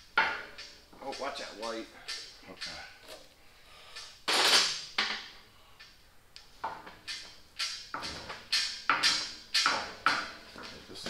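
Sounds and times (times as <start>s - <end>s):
metal knocks and clanks: 0.0s - 2.9s, 6.6s - 11.0s.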